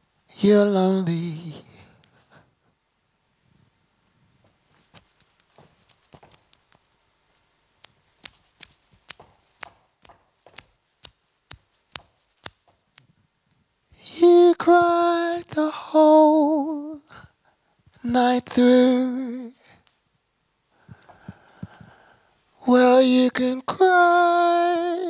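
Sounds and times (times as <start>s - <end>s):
sharp clicks keeping a beat: 7.8s - 13.1s
woman singing unaccompanied: 18.0s - 19.6s, 22.6s - 25.0s.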